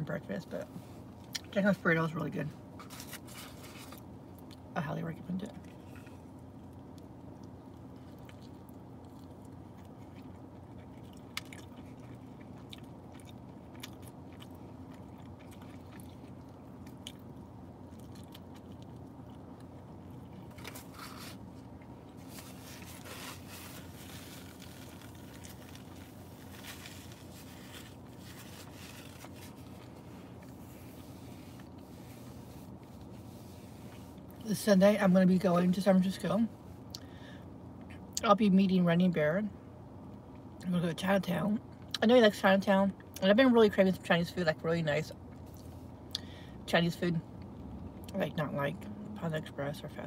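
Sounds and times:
steady low hum: 0.0s - 50.0s
wet chewing: 5.6s - 31.9s.

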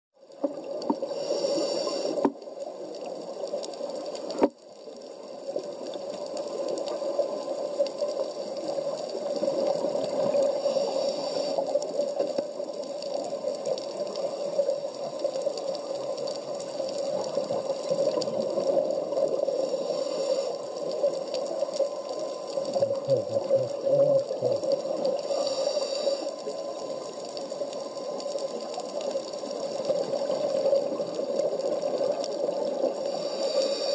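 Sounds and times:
underwater watery rush: 0.2s - 33.9s
regulator bubbles hissing: 6.9s - 33.9s.

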